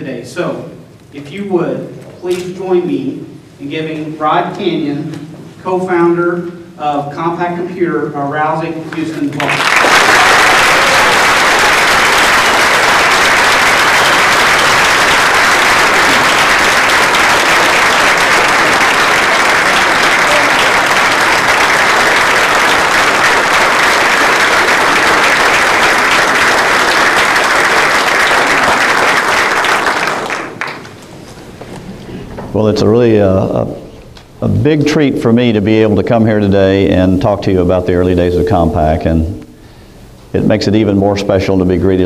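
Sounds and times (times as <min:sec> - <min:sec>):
large audience applauding: 0:09.4 - 0:31.0.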